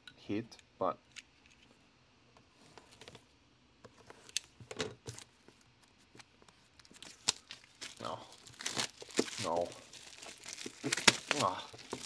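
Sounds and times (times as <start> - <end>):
plastic wrap rustling: 6.7 - 12.0.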